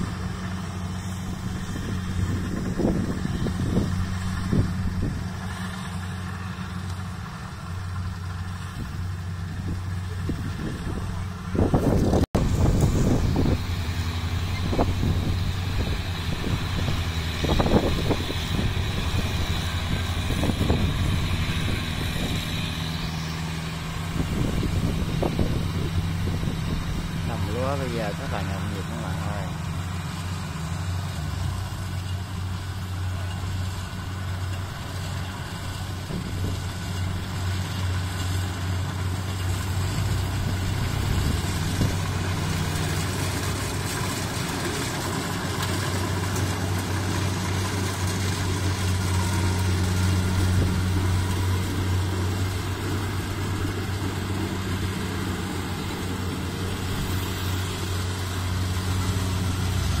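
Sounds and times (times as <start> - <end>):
combine harvester diesel engine: 0.0 - 60.0.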